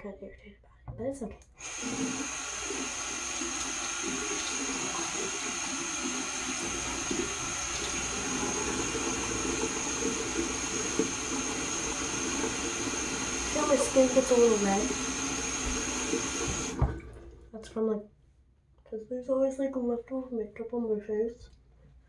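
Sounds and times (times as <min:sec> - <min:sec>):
sink tap running: 0:01.6 - 0:17.3
water splashing: 0:01.6 - 0:17.5.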